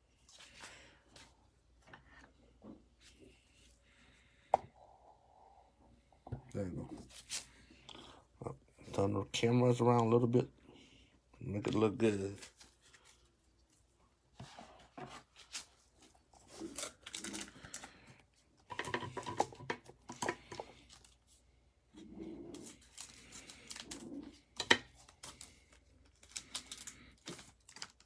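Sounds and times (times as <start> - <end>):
plastic wrapper crinkling: 15.4 - 18.0, 25.0 - 28.0.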